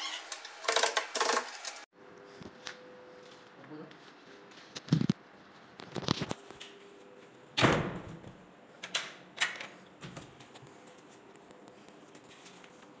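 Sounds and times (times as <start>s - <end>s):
wooden door shutting: 7.6s - 8.2s.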